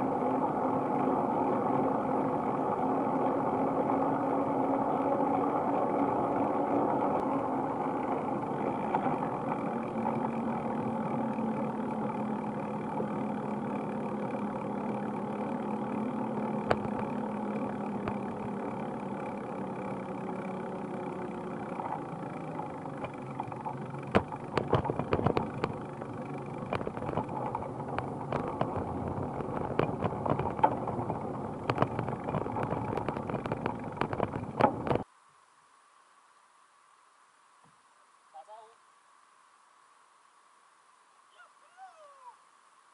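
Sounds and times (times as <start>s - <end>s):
bicycle clicks and rattles: 0.0s - 35.1s
rolling tyres and wind hum: 0.0s - 38.3s.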